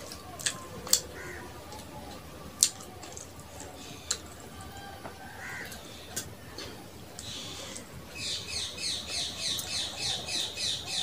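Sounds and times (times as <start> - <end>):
wet eating clicks and smacks: 0.0 - 1.1, 1.7 - 4.5.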